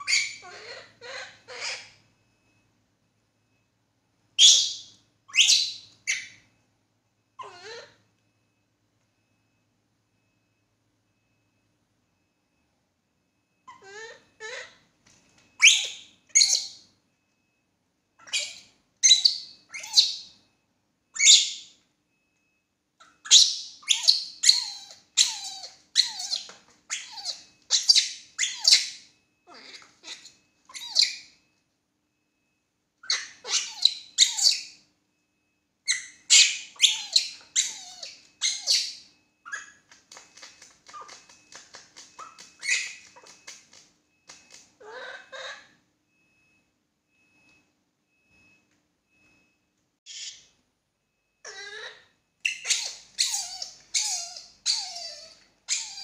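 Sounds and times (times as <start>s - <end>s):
baby monkey screeching: 23.0s - 31.2s, 33.1s - 34.7s, 35.9s - 39.8s, 51.5s - 56.0s.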